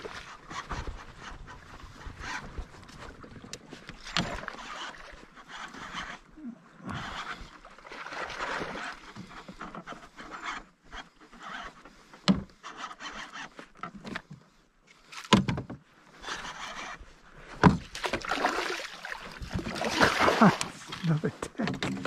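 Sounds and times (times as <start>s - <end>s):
sharp knocks against hull: 15.3s - 15.8s, 17.6s - 18.3s
net splashing into water: 18.0s - 21.1s.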